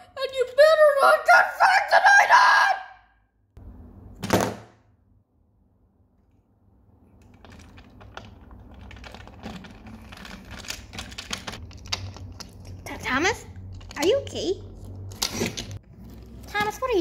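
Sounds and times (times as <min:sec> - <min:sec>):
phone dropping onto table: 0:04.2 - 0:04.8
plastic toy clicking and rubbing: 0:07.2 - 0:15.8.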